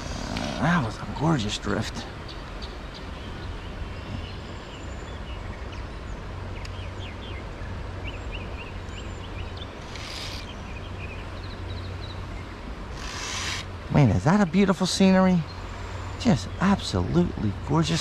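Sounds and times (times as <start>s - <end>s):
low wind rumble: 0.0s - 18.0s
stream water flowing: 0.0s - 18.0s
small bird chirping: 8.0s - 18.0s.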